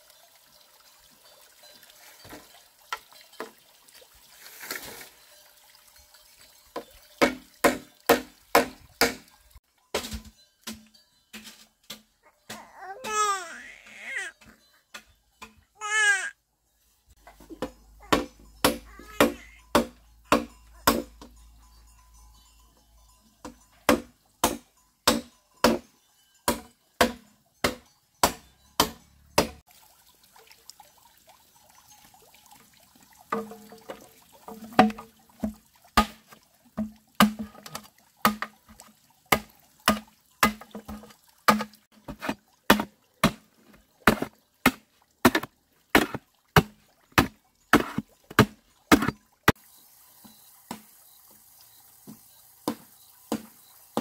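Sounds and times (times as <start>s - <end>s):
blade chopping wood: 7.2s - 9.2s, 17.6s - 21.1s, 26.5s - 29.6s, 34.8s - 43.4s, 44.1s - 49.2s.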